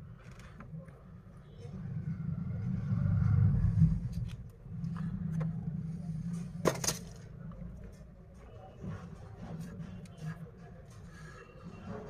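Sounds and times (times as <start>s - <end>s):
low rumble: 1.7s - 6.5s.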